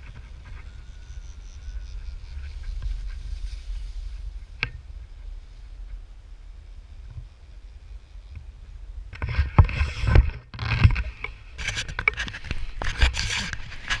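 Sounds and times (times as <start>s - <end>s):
wind rumble on microphone: 0.0s - 14.0s
camera handling scraping and knocking: 9.2s - 14.0s.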